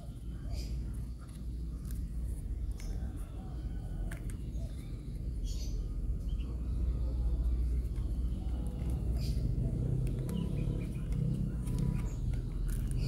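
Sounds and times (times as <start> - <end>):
plastic headlamp clicks and scrapes: 11.0 - 13.0.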